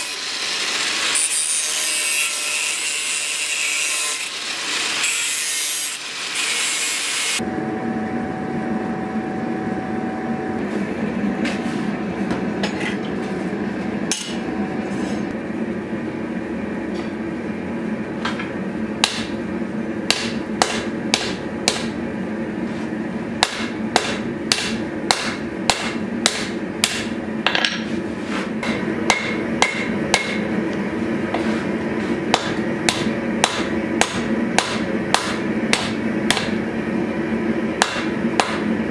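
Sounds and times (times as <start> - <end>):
angle grinder cutting steel: 0.0 - 7.4
steady hum: 7.4 - 38.9.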